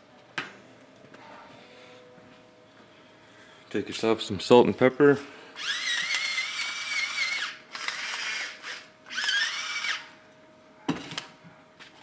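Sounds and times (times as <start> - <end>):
grinder motor whine: 5.6 - 10.2.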